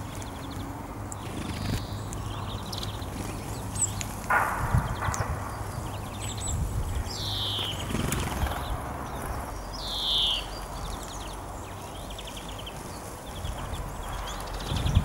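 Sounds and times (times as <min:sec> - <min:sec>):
bird dry trills: 0:00.0 - 0:15.0
songbird downward-sliding calls: 0:05.8 - 0:10.6.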